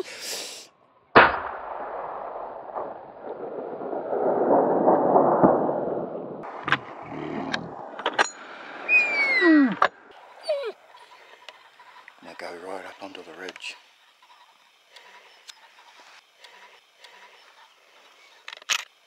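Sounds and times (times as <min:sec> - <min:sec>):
rifle shot echoing: 0:01.2 - 0:07.0
short falling call: 0:08.8 - 0:10.0.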